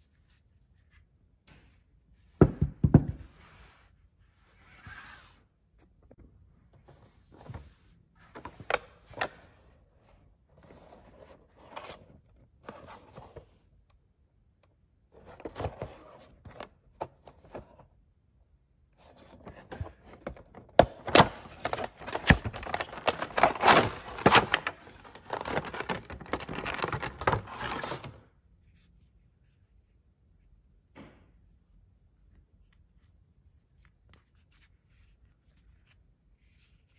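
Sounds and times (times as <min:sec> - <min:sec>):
packaging rustling and crinkling: 0:21.0 - 0:28.2.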